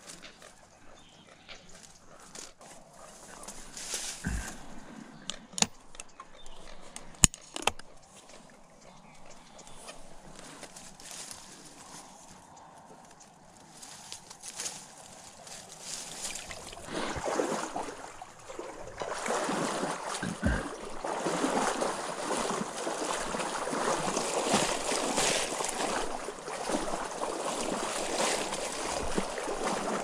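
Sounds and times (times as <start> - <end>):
reeds swishing: 1.7 - 5.1, 13.6 - 30.0
water splashing: 14.8 - 30.0.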